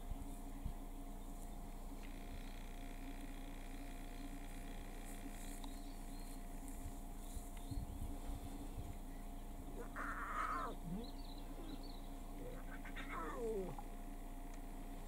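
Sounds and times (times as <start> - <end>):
lion cubs mewing: 9.6 - 14.0.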